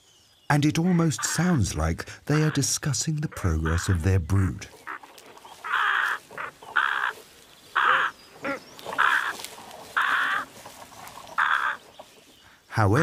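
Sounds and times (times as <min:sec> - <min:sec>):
crows cawing: 0:03.4 - 0:04.0, 0:04.8 - 0:12.1
soft crow calls: 0:04.7 - 0:12.1.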